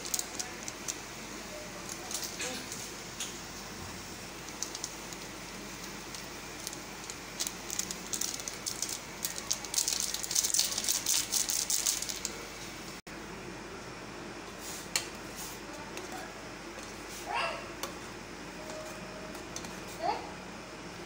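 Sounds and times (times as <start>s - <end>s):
foil sachet crinkling: 0.0s - 1.0s, 4.6s - 12.4s
boiling pot bubbling: 0.0s - 13.0s.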